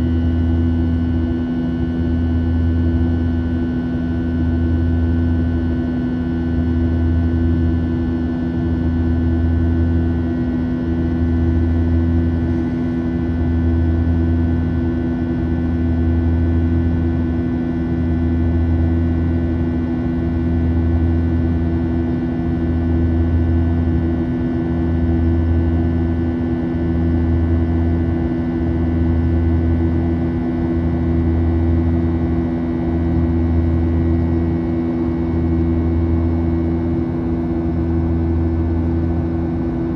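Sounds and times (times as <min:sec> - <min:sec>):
jet engines in flight cabin drone: 0:00.0 - 0:39.9.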